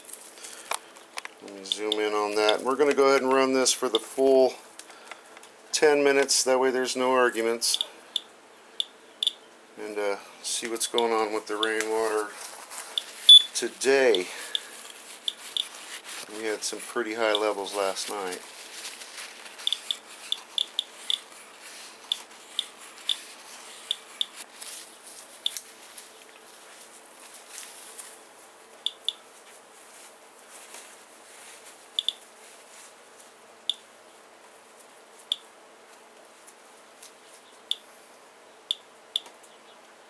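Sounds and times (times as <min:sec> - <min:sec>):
faint rustling: 0:10.5 - 0:28.7, 0:29.3 - 0:33.4.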